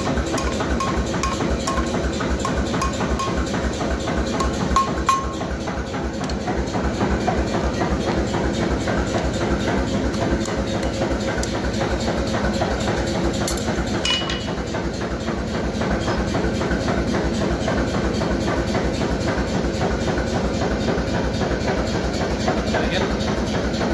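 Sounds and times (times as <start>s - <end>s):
forge roaring with low pulsing: 0.0s - 18.6s.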